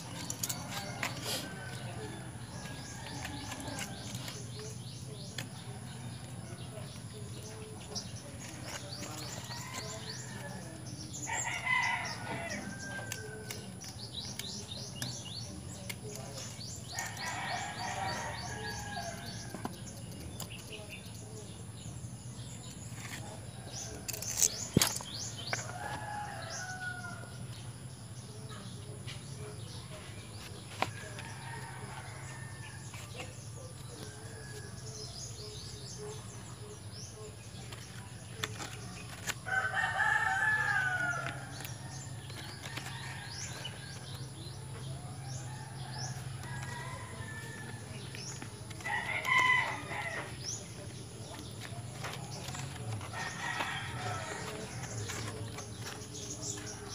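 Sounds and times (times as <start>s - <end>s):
rooster crowing: 39.5s - 41.4s.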